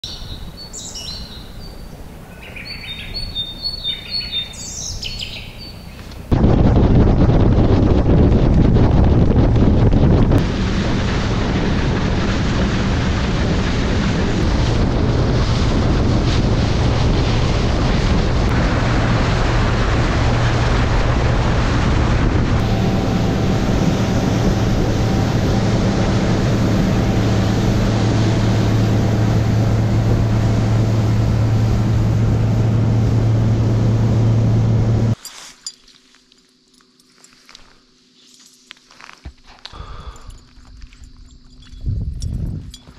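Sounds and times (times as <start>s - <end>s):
outboard motor running: 2.1s - 35.2s
wind buffeting microphone: 6.2s - 35.2s, 40.2s - 42.9s
boat hull slapping waves: 6.3s - 35.2s.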